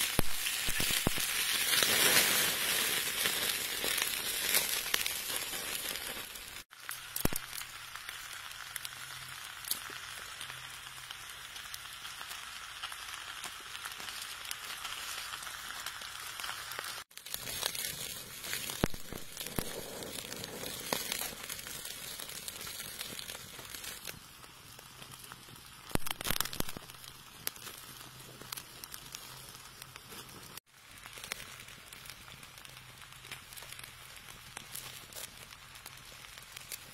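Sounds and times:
fire crackling: 0:00.0 - 0:36.9
meat sizzling on hot stone: 0:00.0 - 0:36.9.

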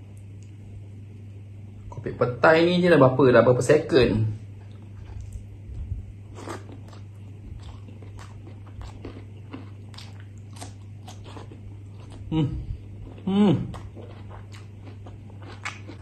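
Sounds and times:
low steady hum: 0:00.0 - 0:16.0
person chewing crunchy food: 0:04.6 - 0:16.0.

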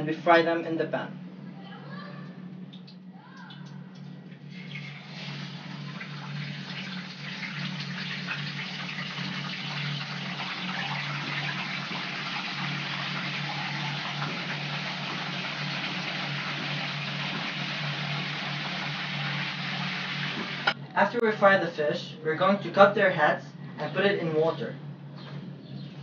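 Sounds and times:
low steady hum: 0:00.0 - 0:26.0
fish sizzling in oil: 0:04.4 - 0:20.8.

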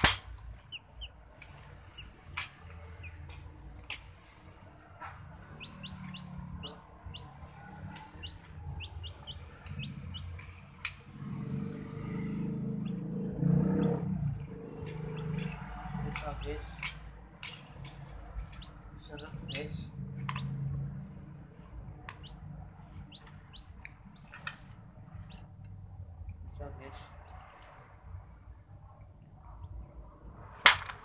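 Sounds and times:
high bird-like chirps: 0:00.5 - 0:03.4, 0:05.4 - 0:10.8, 0:22.2 - 0:25.5.

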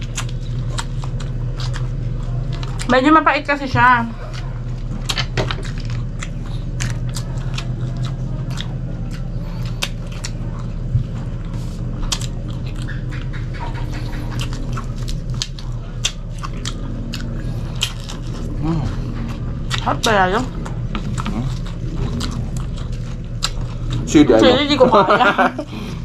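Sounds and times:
chewing with wet mouth clicks: 0:00.0 - 0:03.0, 0:04.2 - 0:24.5
steady low hum: 0:00.0 - 0:26.0
lip smacks: 0:11.8 - 0:19.8.

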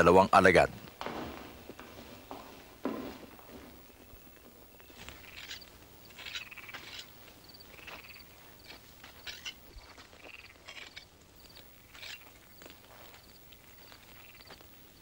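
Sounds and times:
small animals chirping: 0:04.1 - 0:14.7.

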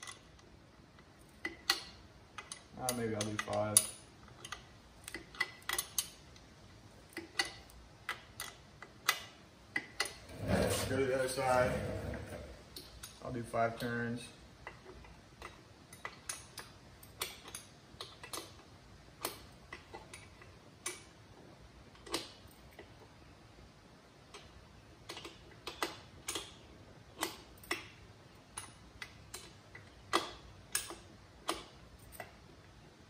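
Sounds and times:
wrench clicking on bolt: 0:01.4 - 0:06.5.

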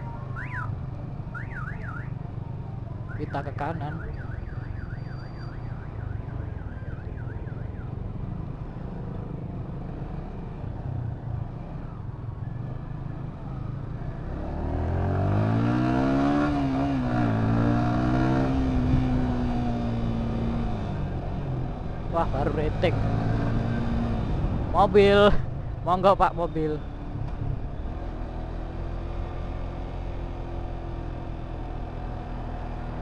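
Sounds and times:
warbling electronic alarm: 0:03.9 - 0:07.7
motorcycle engine revving: 0:14.2 - 0:25.1.

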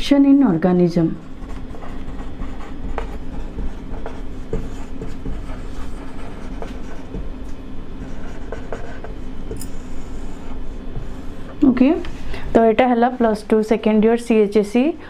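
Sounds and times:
marker writing on a whiteboard: 0:01.2 - 0:11.5.

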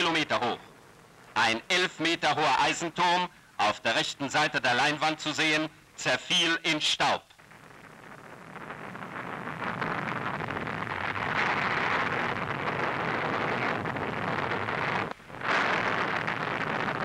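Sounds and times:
rushing explosion blast: 0:07.5 - 0:17.0.

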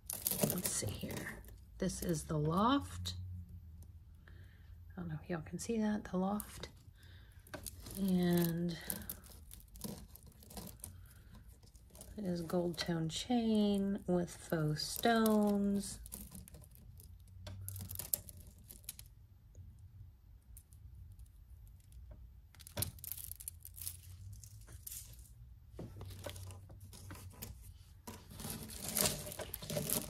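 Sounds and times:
chain and beads clicking: 0:22.6 - 0:25.3.

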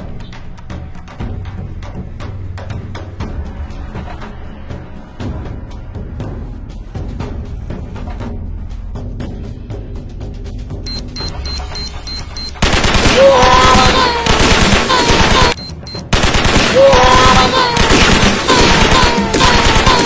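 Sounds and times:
short high beeps: 0:10.9 - 0:12.6, 0:15.6 - 0:16.0
rapid machine-gun fire: 0:12.6 - 0:20.0
voices shouting: 0:13.0 - 0:15.6, 0:16.7 - 0:17.9.

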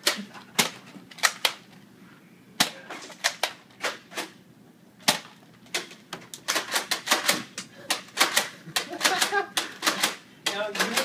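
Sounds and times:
foam dart blasters clacking: 0:05.0 - 0:11.0.

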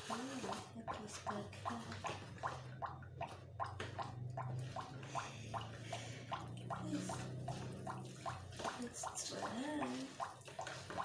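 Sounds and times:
hands squelching wet dough: 0:00.0 - 0:11.0
low steady hum: 0:00.0 - 0:11.0.

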